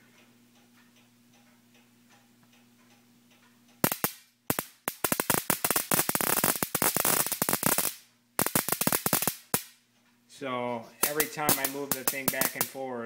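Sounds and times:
high-voltage sparks snapping: 3.8 - 9.8, 11.0 - 12.8.

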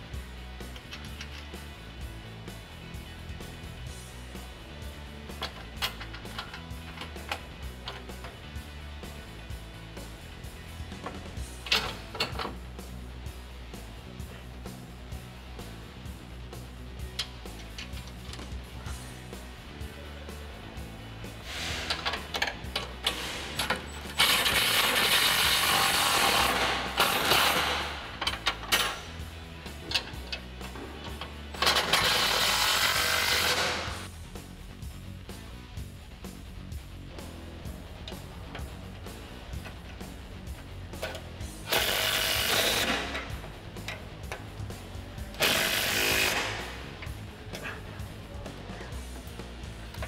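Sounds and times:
cordless power tool running: 31.8 - 34.0, 41.7 - 43.2, 45.4 - 46.6
cordless drill-driver running: 32.0 - 34.0.

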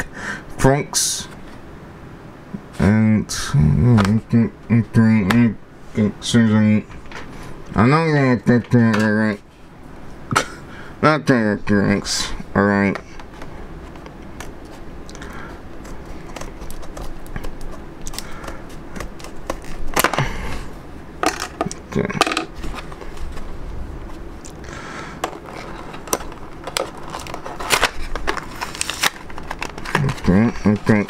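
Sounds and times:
stiff plastic crackling: 13.1 - 20.4, 22.6 - 31.0
scissors snipping plastic: 15.8 - 20.3, 25.2 - 31.0.

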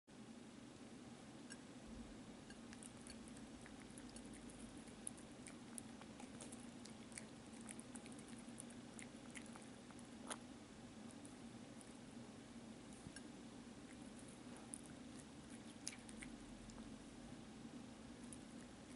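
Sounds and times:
kitten chewing and licking: 0.6 - 18.9.

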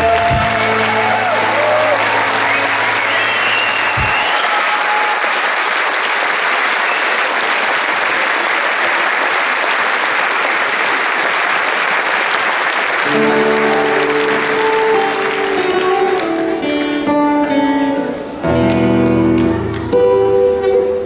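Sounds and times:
audience applauding: 0.0 - 17.5, 18.5 - 20.2
plucked string music: 13.1 - 21.0.

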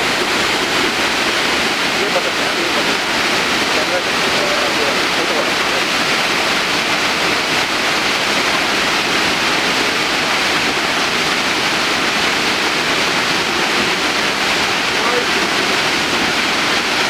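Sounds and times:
waterfall crashing onto rock: 0.0 - 17.0.

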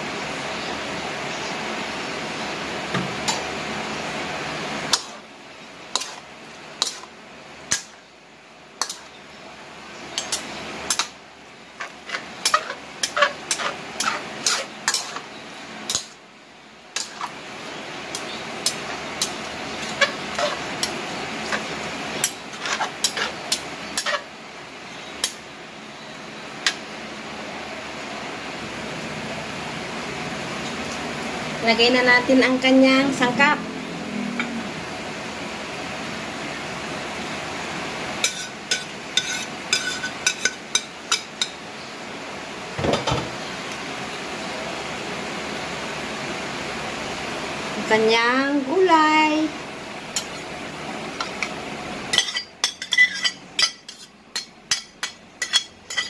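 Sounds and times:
metal spatula scraping wok: 4.9 - 5.2, 5.9 - 7.1, 8.8 - 9.2, 10.2 - 11.2, 11.8 - 16.2, 17.0 - 17.4, 18.1 - 24.3, 38.2 - 41.6, 52.1 - 56.0.

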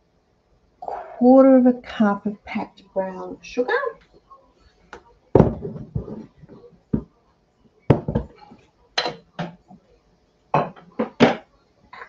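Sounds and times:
canister and utensils knocking: 7.9 - 8.4.

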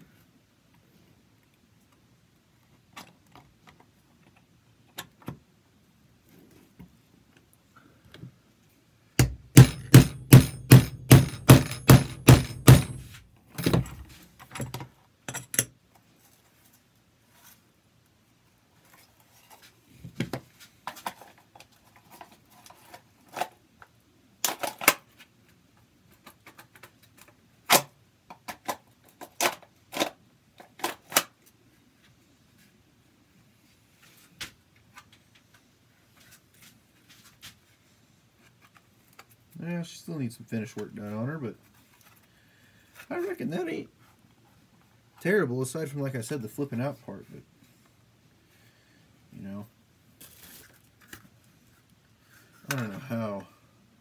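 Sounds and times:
hammer striking rivets: 9.2 - 13.9.

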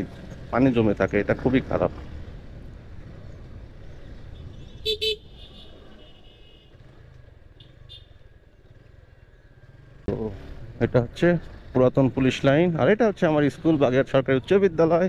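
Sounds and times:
low road rumble: 0.0 - 15.0
vehicle horn beeps: 4.4 - 6.8.

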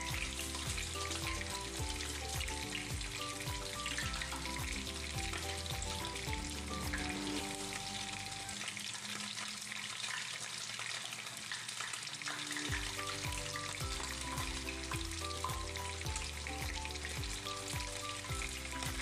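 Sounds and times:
background music with a beat: 0.0 - 8.4, 12.6 - 19.0
fish sizzling in frying pan: 0.0 - 19.0.

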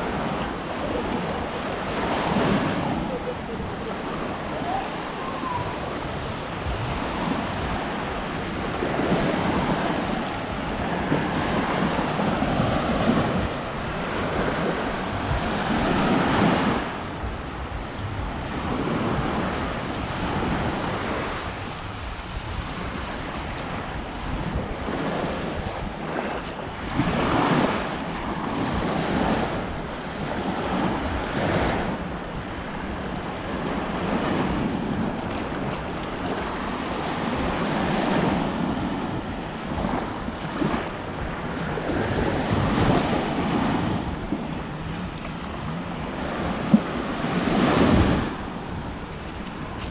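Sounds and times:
small waves breaking on shore: 0.0 - 49.9
wind buffeting microphone: 0.0 - 49.9.

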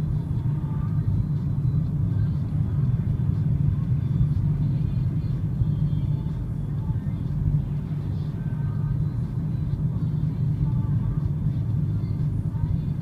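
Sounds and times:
car driving heard from inside: 0.0 - 13.0.

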